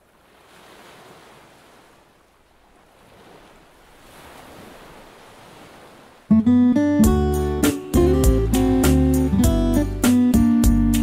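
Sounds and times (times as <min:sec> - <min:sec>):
small waves washing onto sand: 0:00.0 - 0:06.4
guitar music: 0:06.3 - 0:11.0.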